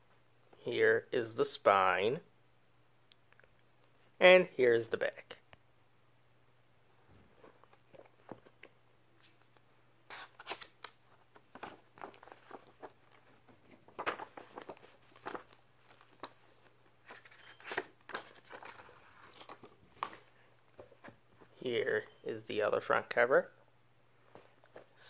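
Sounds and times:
paper rustling and scraping: 10.1s - 20.4s.

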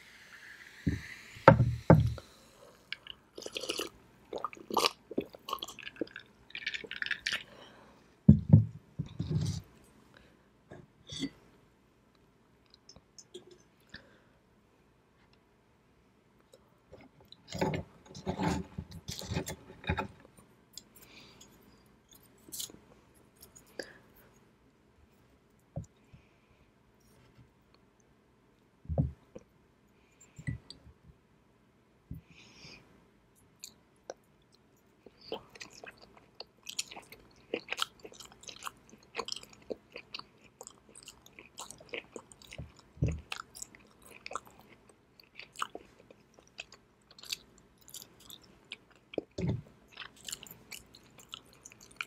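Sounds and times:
wet chewing: 33.6s - 52.0s.

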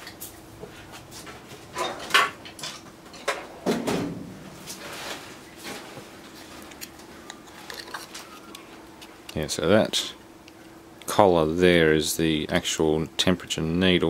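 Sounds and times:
tools and drawer clattering: 1.7s - 9.1s.

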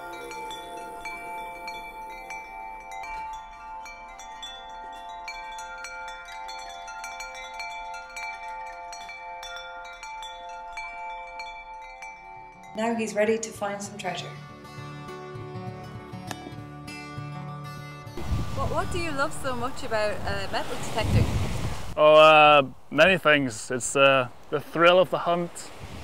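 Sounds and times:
wind chimes tinkling: 0.0s - 14.8s.

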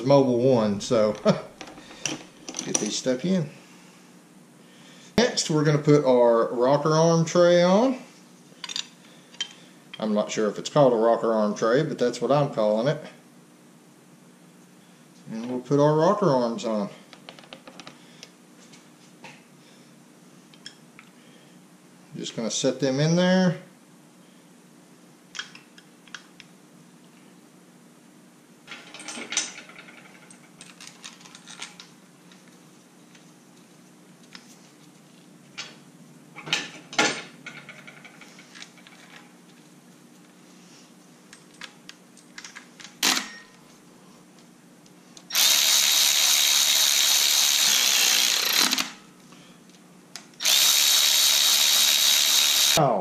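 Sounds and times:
metal parts clinking: 28.7s - 31.9s
cordless electric ratchet whirring: 45.3s - 49.0s, 50.4s - 52.8s.

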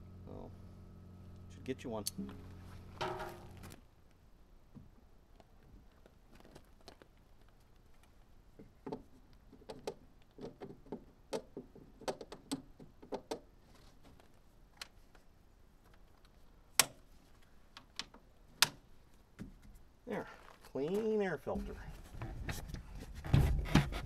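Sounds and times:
sharp plastic snaps: 15.9s - 17.1s, 17.7s - 18.8s.

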